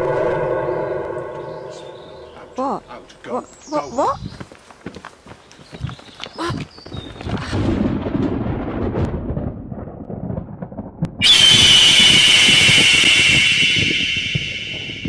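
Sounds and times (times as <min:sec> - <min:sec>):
high-pitched ringing sting: 0:00.0 - 0:03.2, 0:11.2 - 0:15.0
low thunder-like rumble: 0:00.0 - 0:03.2, 0:07.2 - 0:15.0.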